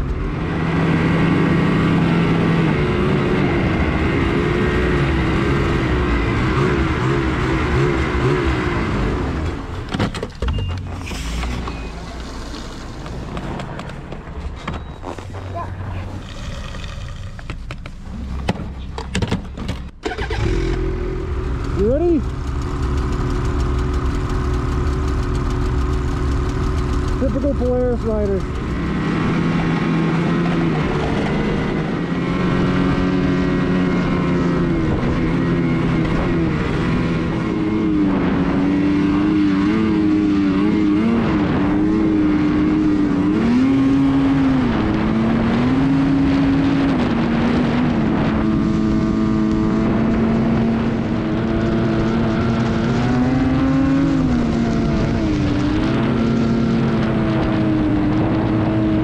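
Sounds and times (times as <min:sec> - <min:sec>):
snowmobile engine revving: 0:00.2 - 0:09.8, 0:20.0 - 0:59.0.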